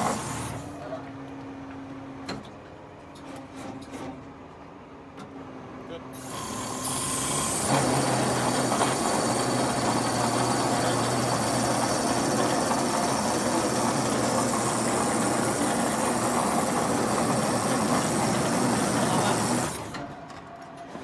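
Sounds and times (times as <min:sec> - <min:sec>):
hydraulic pipe spinner running: 0:00.0 - 0:00.7, 0:06.2 - 0:21.0.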